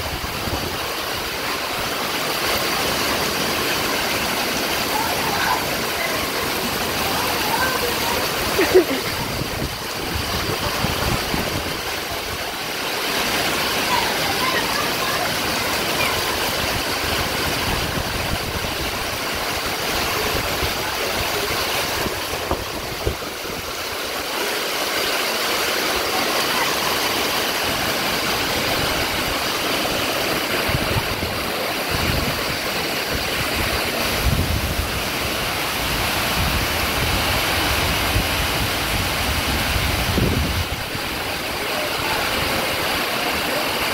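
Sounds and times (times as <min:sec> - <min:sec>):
pouring rain: 0:00.0 - 0:43.9
wind rumbling on microphone: 0:08.3 - 0:12.5, 0:16.4 - 0:24.0, 0:27.8 - 0:41.3.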